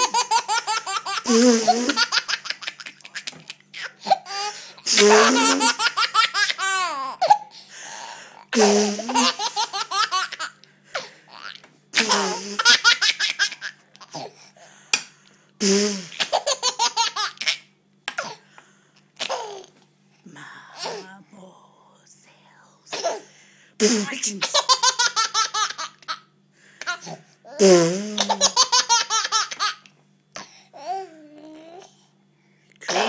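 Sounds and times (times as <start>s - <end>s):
baby laughing: 0.0s - 7.5s, 8.8s - 14.3s, 16.1s - 17.7s, 19.2s - 19.7s, 24.4s - 27.6s, 28.2s - 29.9s.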